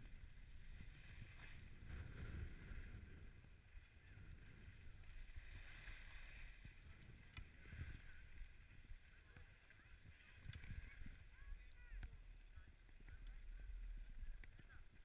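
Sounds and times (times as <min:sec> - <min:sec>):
wind buffeting microphone: 0:00.0 - 0:09.1
skis sliding over packed snow: 0:00.0 - 0:15.0.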